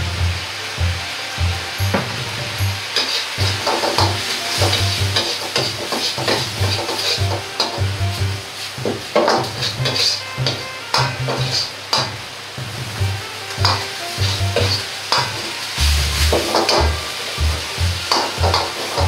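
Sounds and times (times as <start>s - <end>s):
food sizzling: 0.0s - 19.0s
metal ladle scraping a wok: 2.8s - 7.8s, 8.4s - 12.2s, 13.5s - 19.0s.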